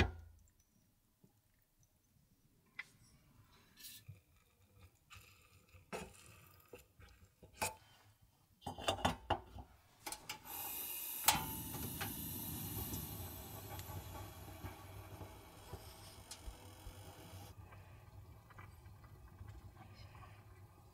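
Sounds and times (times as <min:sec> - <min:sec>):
steady hissing: 0:10.1 - 0:18.9.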